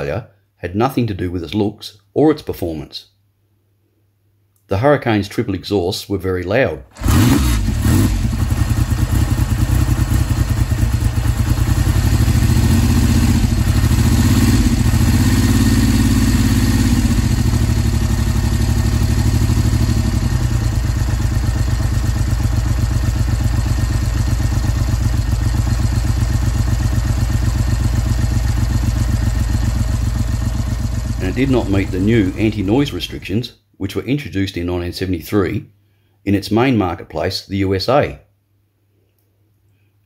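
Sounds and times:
motorcycle engine revving and idling: 7.0s - 33.3s.

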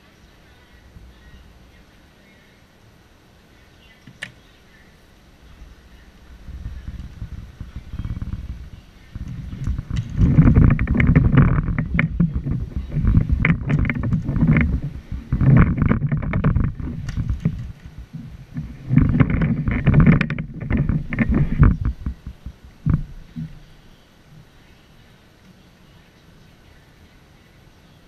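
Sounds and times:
wind buffeting microphone: 5.3s - 23.8s.

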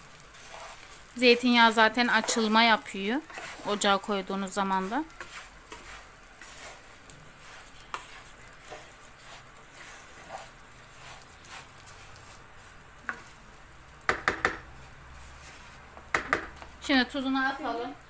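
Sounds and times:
faint sizzle in oil: 0.0s - 18.0s
spoon scraping pot: 0.3s - 13.4s.

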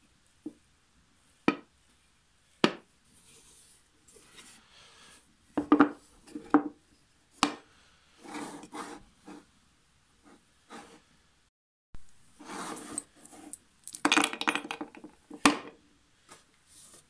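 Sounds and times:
box sliding on wood: 8.2s - 9.5s, 10.3s - 11.0s, 12.4s - 13.6s.

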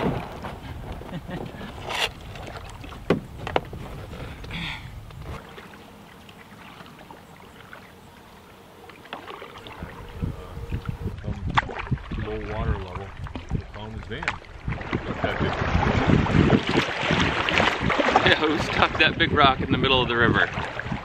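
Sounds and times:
paddle strokes in water: 0.0s - 4.5s, 5.1s - 18.7s
paddle knocking against canoe: 0.0s - 5.4s.

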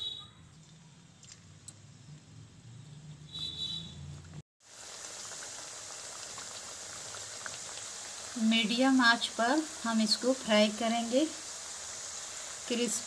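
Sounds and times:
dough sizzling in hot oil: 4.6s - 13.0s.

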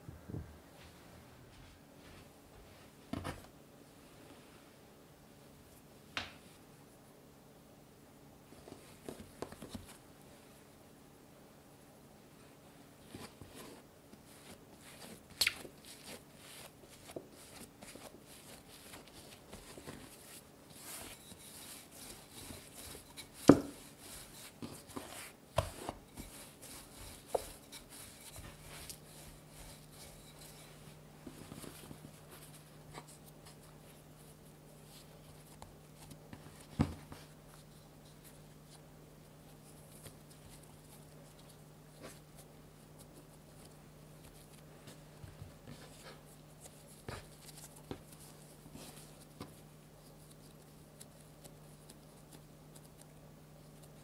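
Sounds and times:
rolling pin rolling dough: 13.0s - 38.8s
hands pressing dough: 13.2s - 33.8s.

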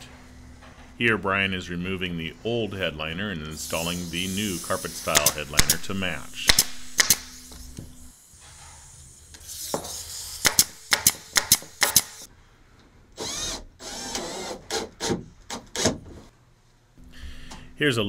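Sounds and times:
drill driving screws into wood: 6.5s - 7.6s, 9.4s - 12.3s, 13.2s - 16.0s.

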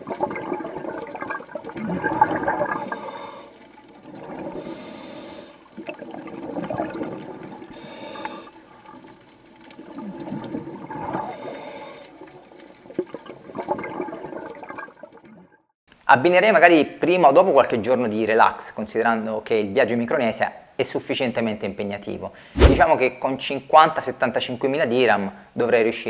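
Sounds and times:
gurgling exhaled bubbles: 0.0s - 15.3s
hissing regulator inhalations: 2.7s - 3.7s, 4.6s - 5.7s, 7.7s - 8.6s, 11.2s - 12.2s.

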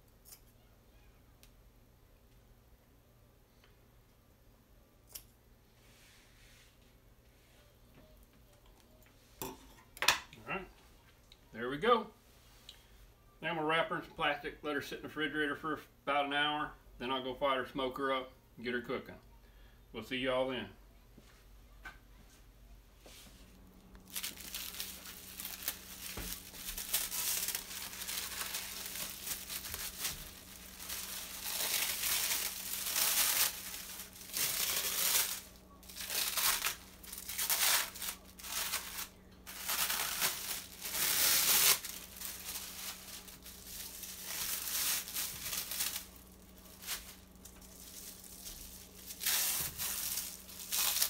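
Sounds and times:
plastic wrap crinkling: 23.8s - 51.0s.

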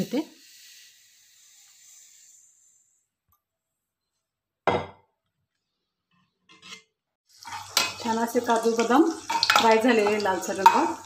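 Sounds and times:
kitchenware clanking: 6.5s - 11.0s.

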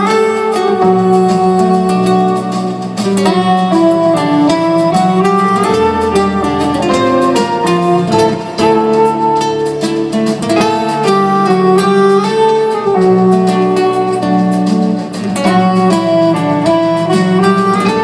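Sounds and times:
acoustic guitar: 0.0s - 18.0s
held melody notes: 0.0s - 18.0s
bass line: 0.9s - 9.8s.

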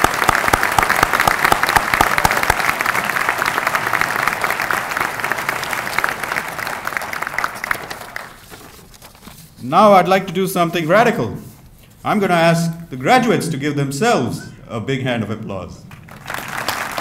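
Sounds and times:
close hand claps: 0.0s - 8.4s, 15.9s - 17.0s
audience applauding: 0.0s - 8.6s, 15.9s - 17.0s.

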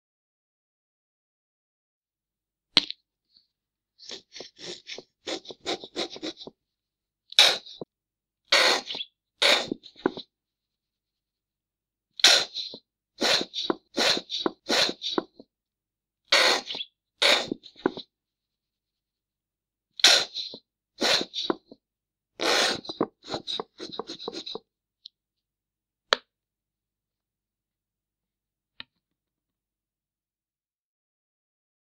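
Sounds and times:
ketchup bottle sputtering: 8.5s - 10.2s, 12.2s - 15.4s, 16.3s - 18.0s, 22.4s - 24.6s.

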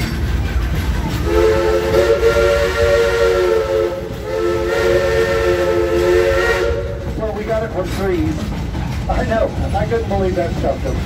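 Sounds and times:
train running rumble: 0.0s - 11.0s
steam locomotive chime whistle: 1.2s - 7.0s.

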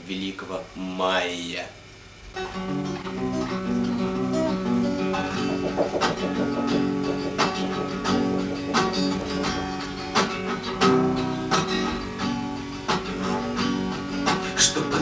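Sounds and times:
acoustic guitar strummed chords: 4.5s - 13.0s.

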